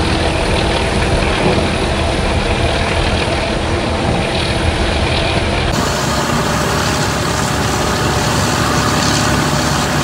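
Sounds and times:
water gushing from pipe into pool: 0.0 - 10.0
excavator diesel engine running: 5.7 - 10.0.

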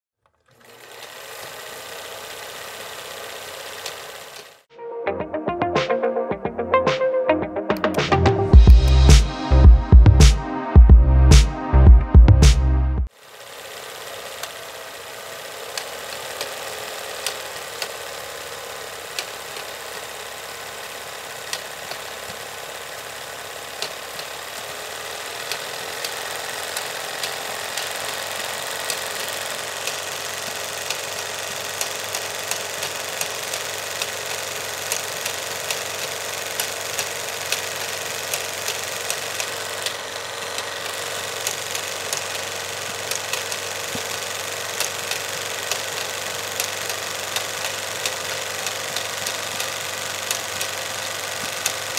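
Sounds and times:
film projector whirring: 0.2 - 4.7, 13.1 - 51.9
projector clicks: 3.7 - 4.6, 15.7 - 18.0, 21.5 - 22.4, 25.4 - 51.9.

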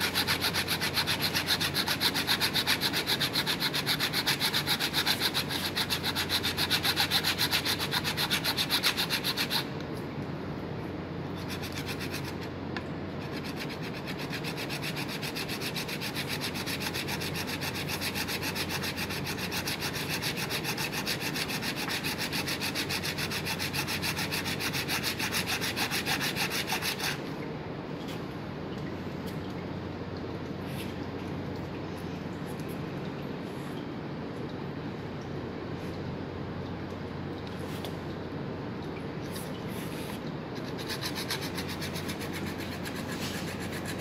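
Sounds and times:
blade rasping on bone: 0.0 - 9.7, 13.3 - 27.2, 40.6 - 44.0.

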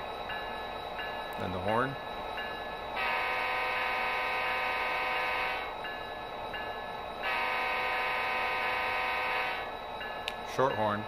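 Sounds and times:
faint locomotive bell ringing: 0.0 - 11.0
model train air horn blasts: 3.0 - 5.7, 7.2 - 9.7.

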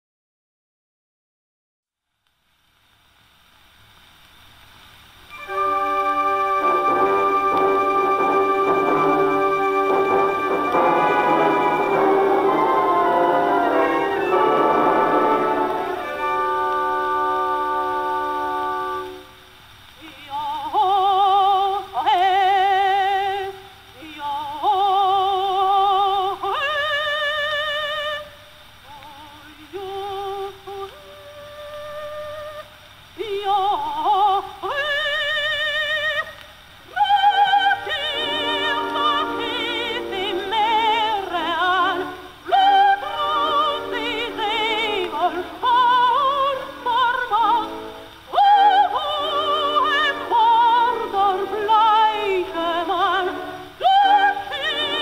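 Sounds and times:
orchestra accompaniment: 5.3 - 19.4, 38.1 - 42.0, 43.0 - 45.4, 47.0 - 51.3, 54.2 - 55.0
soprano singing opera: 5.3 - 55.0.

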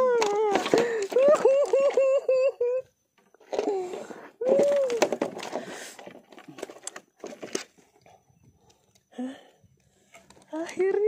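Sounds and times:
man laughing: 1.2 - 2.9.

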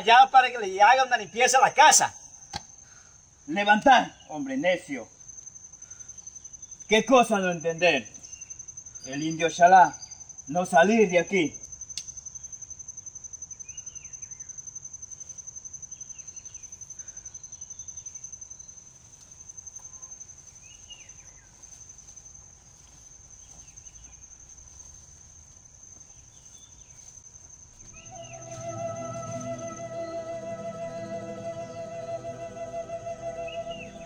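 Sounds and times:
insects trilling: 0.0 - 34.0
bird chirps: 5.2 - 11.3, 26.0 - 34.0
music with held notes: 28.0 - 34.0.

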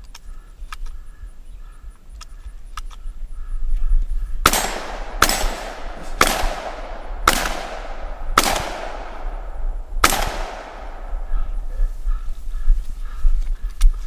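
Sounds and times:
shotgun shots with echo: 4.4 - 11.8.

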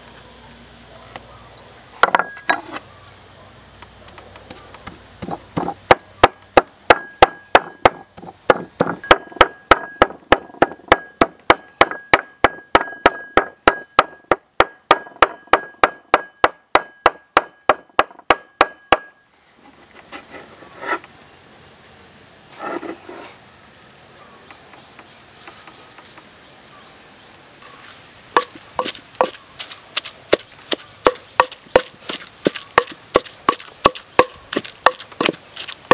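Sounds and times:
blade scraping board: 2.2 - 2.9, 19.5 - 21.1, 22.5 - 23.4
knife chopping on wooden board: 4.1 - 19.1, 28.4 - 29.4, 30.3 - 35.9.

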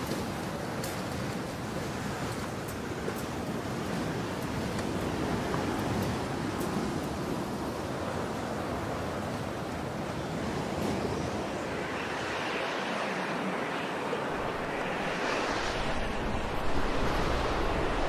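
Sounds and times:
storm wind gusting against tent: 0.0 - 18.0.

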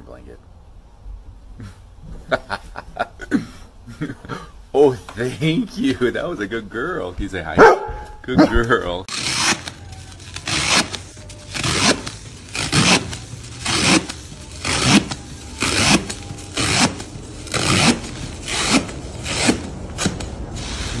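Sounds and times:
knife sawing through straw: 9.1 - 21.0.

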